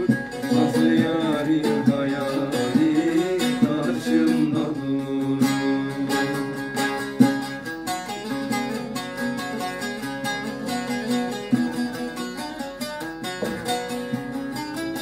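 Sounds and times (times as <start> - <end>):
man singing: 0.0 - 7.1
plucked long-necked lute melody: 0.0 - 15.0.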